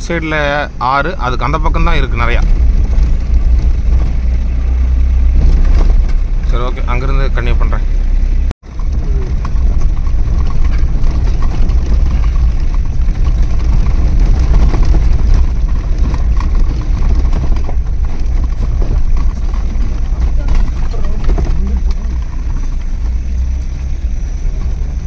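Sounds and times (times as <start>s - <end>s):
car engine and tyres rumbling: 0.0s - 25.0s
car rattling over bumps: 0.0s - 25.0s.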